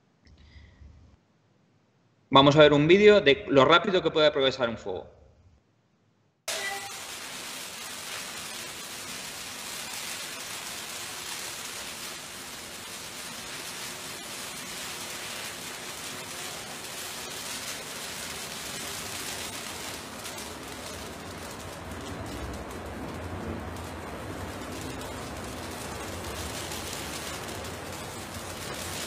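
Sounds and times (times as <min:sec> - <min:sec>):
faint fire crackles: 0:06.5 - 0:29.0
fire rushing: 0:06.5 - 0:29.0.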